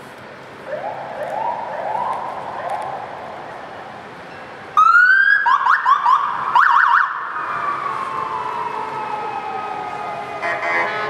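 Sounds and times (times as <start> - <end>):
motorcycle siren wailing: 4.8 - 10.9.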